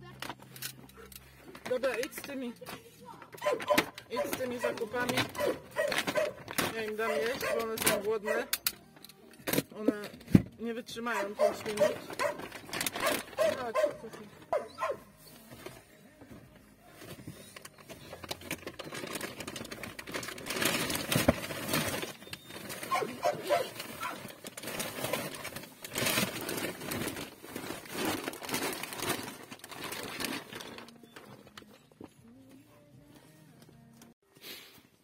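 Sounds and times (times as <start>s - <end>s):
shopping bags rustling: 0.4s - 9.0s, 10.9s - 33.9s
dog barking: 3.4s - 6.4s, 7.1s - 8.5s, 11.2s - 15.1s, 22.8s - 24.2s.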